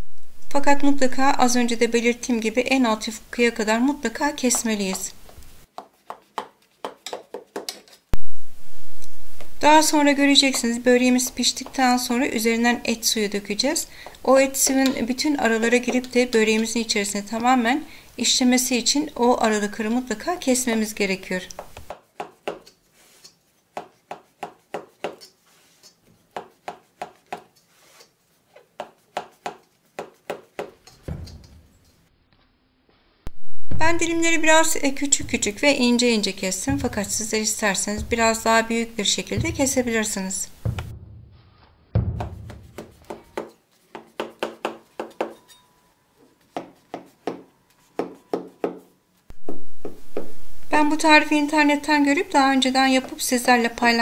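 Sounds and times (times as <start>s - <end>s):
knife slicing dry pastry: 21.8s - 30.8s.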